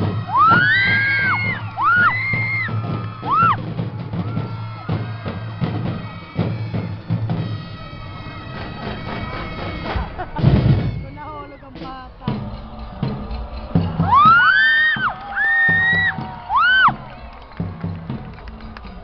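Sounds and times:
drums in driving pattern: 0.0 - 19.0.

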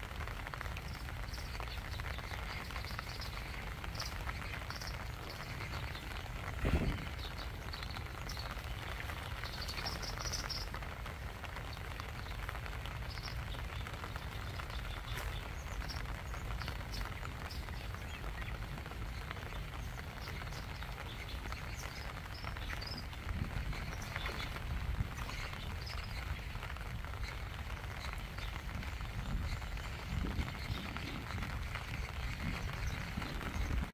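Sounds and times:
rain falling on a lake: 0.0 - 33.9.

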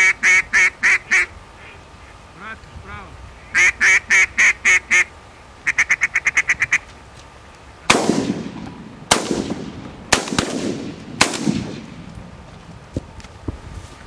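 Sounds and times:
duck call quacks: 0.0 - 2.6, 3.4 - 6.9
shotgun shots with echo: 7.9 - 12.0.

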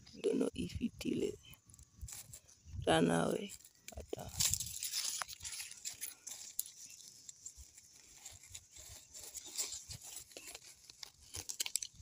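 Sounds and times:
leaves rustling and crackling: 0.1 - 12.0.

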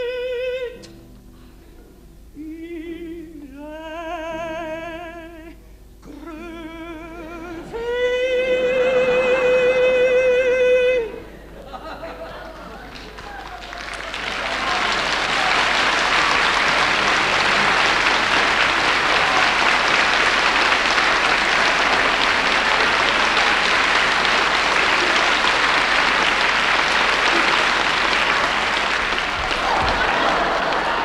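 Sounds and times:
audience applauding: 12.4 - 31.0.

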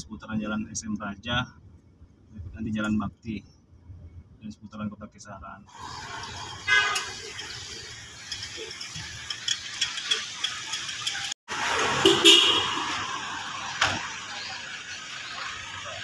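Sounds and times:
cars and motorcycles passing: 5.7 - 16.0.

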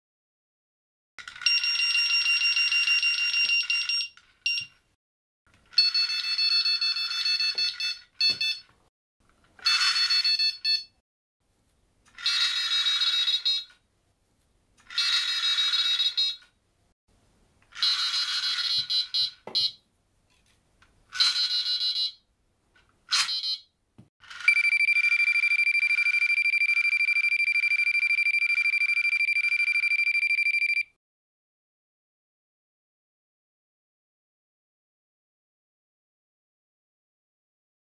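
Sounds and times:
bite alarm beeping: 6.5 - 8.6, 23.2 - 23.7, 24.4 - 31.0.

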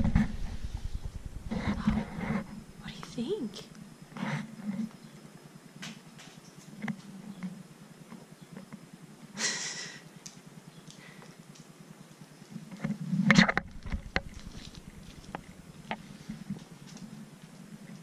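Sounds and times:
faint low hum: 0.0 - 18.0
claws clicking on floor: 13.8 - 18.0.

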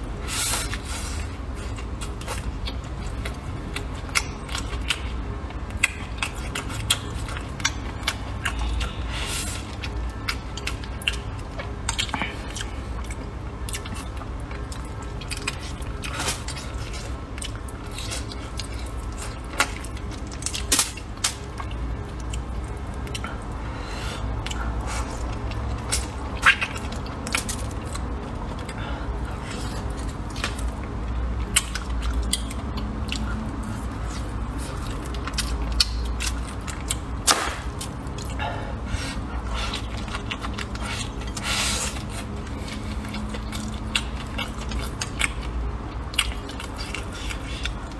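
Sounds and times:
man chewing food: 0.0 - 47.9
steady low hum: 0.0 - 47.9.

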